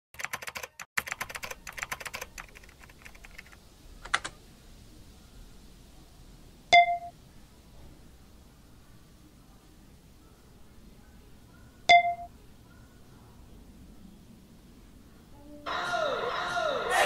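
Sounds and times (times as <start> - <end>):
keyboard typing: 0.2 - 4.4.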